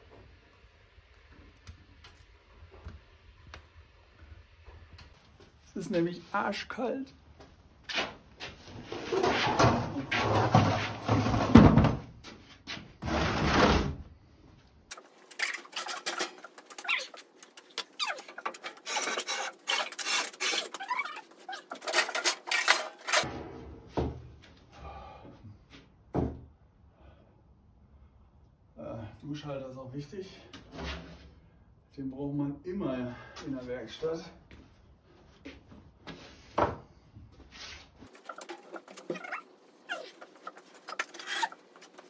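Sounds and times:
loud rubbing and scraping: 15.0s - 23.3s, 38.1s - 42.0s.

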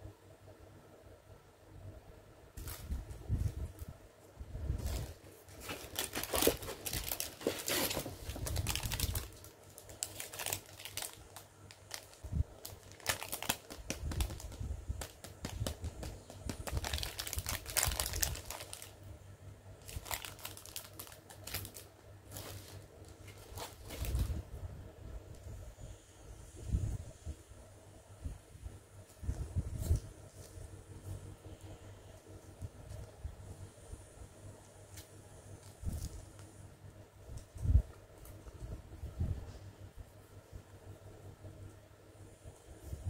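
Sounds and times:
plastic packaging crinkling: 4.8s - 19.0s, 19.8s - 24.4s.

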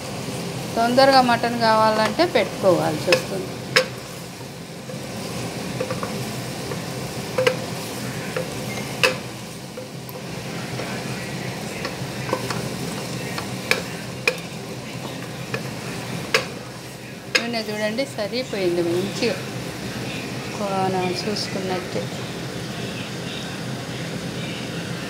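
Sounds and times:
masala sizzling in oil: 0.0s - 25.0s
spatula scraping and knocking pot: 2.0s - 16.6s.

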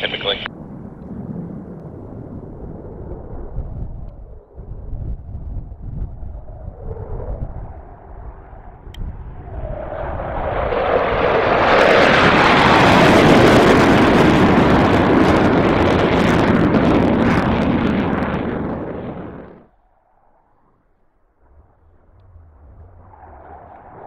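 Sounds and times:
fighter jet flying past: 0.0s - 24.0s.

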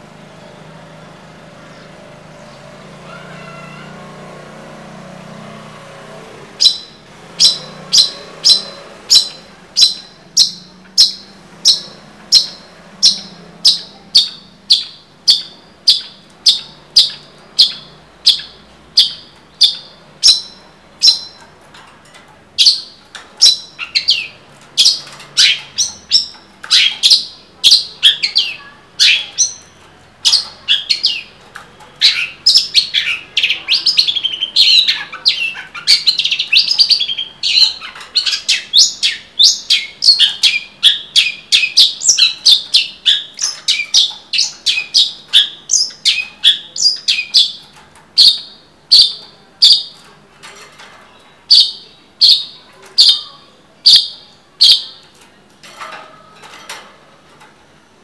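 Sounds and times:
shrike singing: 6.6s - 21.6s, 22.6s - 50.1s.

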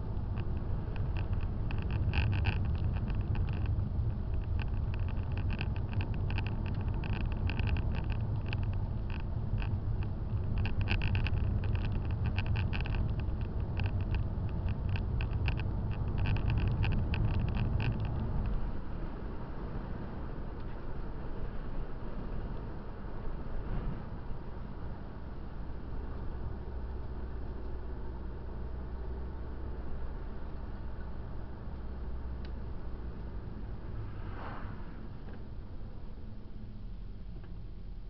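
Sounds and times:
engine and road rumble: 0.0s - 38.0s
rapid irregular rattling: 0.1s - 18.6s.

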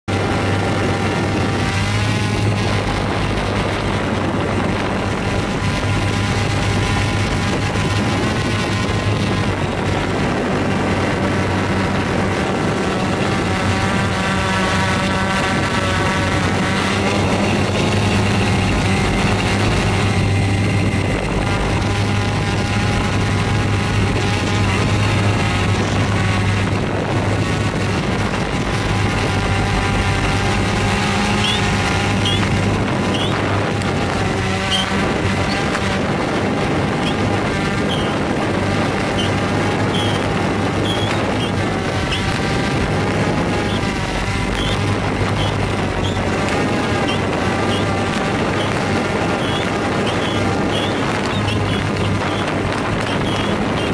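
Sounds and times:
drone propellers humming: 0.0s - 53.9s.

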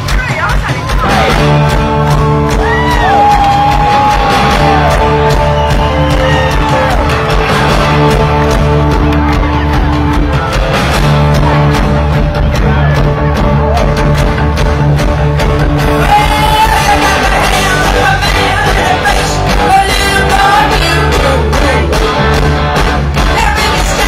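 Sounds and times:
live rock band playing: 0.0s - 24.0s
audience cheering and whooping: 1.8s - 12.8s.

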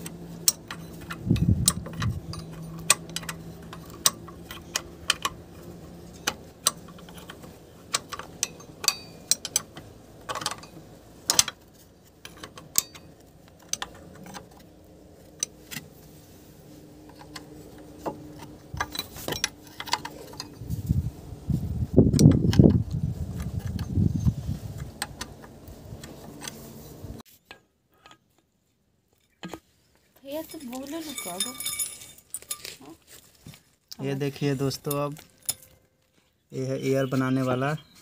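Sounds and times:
spanner clinking on bolts: 0.0s - 16.1s, 17.0s - 20.8s, 30.4s - 32.8s, 34.8s - 35.9s.

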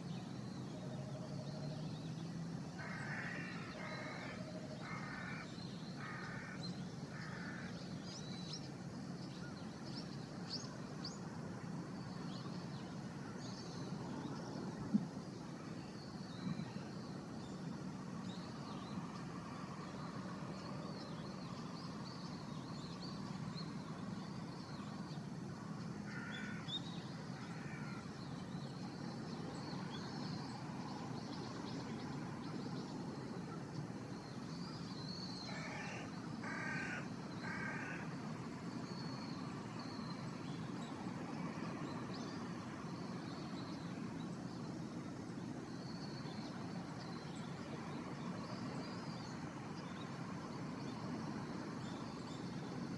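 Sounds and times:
crow cawing: 2.8s - 7.7s, 26.1s - 26.7s, 27.5s - 28.0s, 35.5s - 38.1s.

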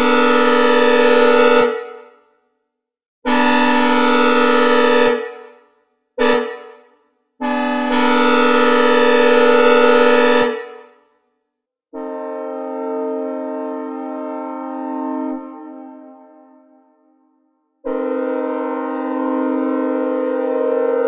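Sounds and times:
locomotive air horn blasts: 0.0s - 2.2s, 3.3s - 5.6s, 6.2s - 11.0s, 12.0s - 16.8s, 17.8s - 21.0s
steady horn chord: 12.0s - 16.8s, 17.9s - 21.0s.

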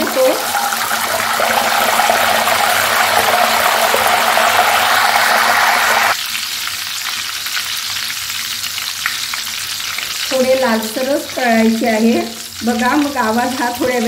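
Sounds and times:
food crackling in hot oil: 0.0s - 14.0s
oil sizzling: 0.0s - 14.0s.

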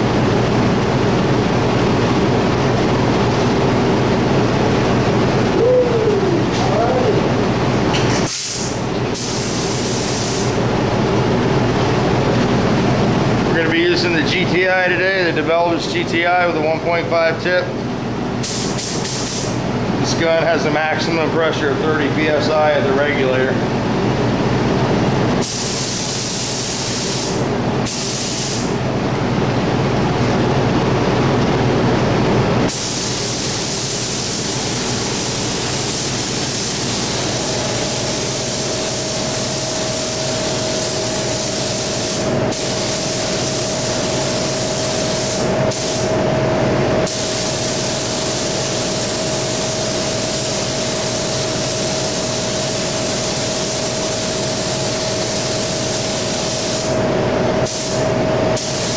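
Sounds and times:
exhaust fan droning: 0.0s - 58.9s
spray gun hissing: 8.2s - 10.6s, 18.4s - 19.6s, 25.4s - 28.7s, 32.7s - 46.1s, 47.0s - 57.0s, 57.6s - 58.0s, 58.6s - 58.9s.

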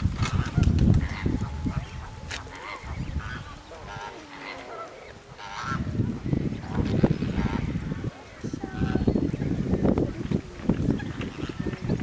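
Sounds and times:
geese honking: 0.2s - 9.2s.

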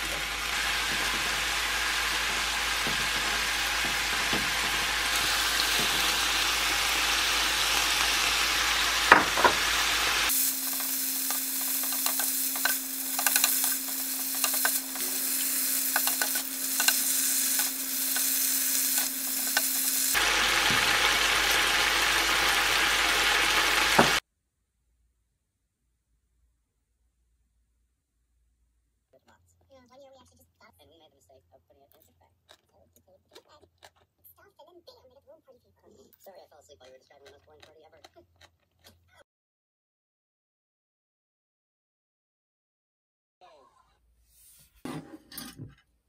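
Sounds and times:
meat sizzling in a frying pan: 0.0s - 24.2s
wooden spatula scraping a pan: 10.6s - 20.1s.

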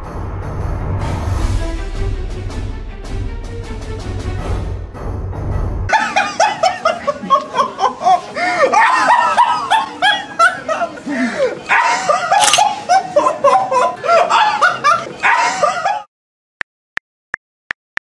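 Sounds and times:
cartoon laughter: 5.9s - 16.1s
sharp click: 12.4s - 12.6s.

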